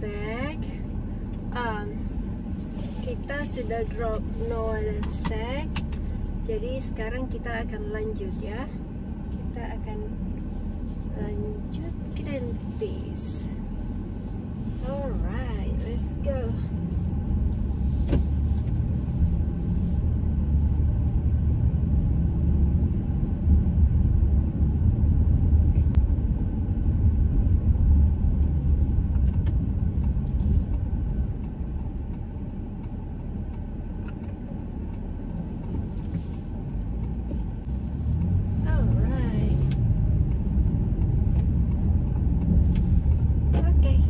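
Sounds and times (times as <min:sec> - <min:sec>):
car road and engine rumble: 0:00.0 - 0:44.0
light regular ticks: 0:29.2 - 0:44.0.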